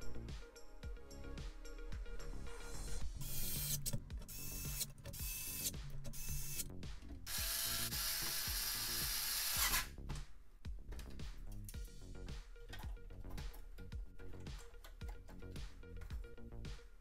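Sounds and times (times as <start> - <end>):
electric screwdriver motor: 7.3 - 9.9.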